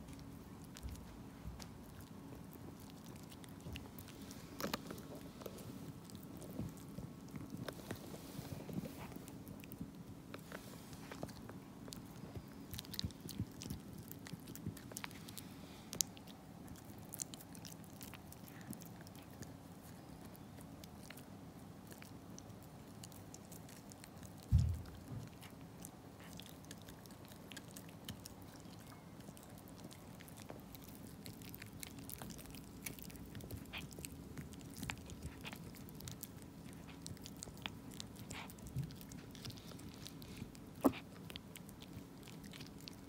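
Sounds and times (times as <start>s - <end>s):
dog gnawing and chewing: 0.0s - 43.0s
dull low thump: 24.5s - 25.0s.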